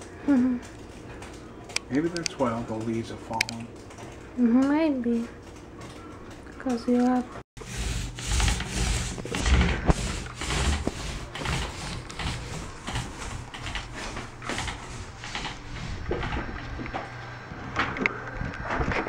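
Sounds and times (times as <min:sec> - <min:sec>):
paint brush strokes on wall: 0:07.6 - 0:16.2.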